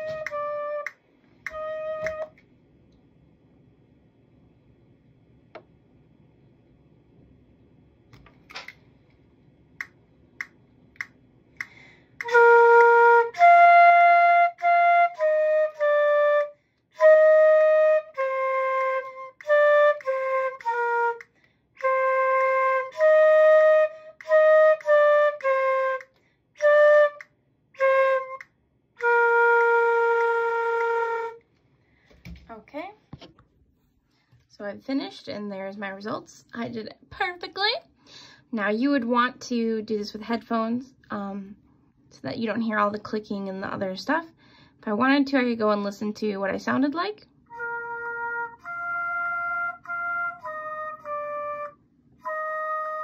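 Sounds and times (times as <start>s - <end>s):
flute playing a melody: 0.0s - 2.4s, 12.2s - 31.5s, 47.5s - 53.0s.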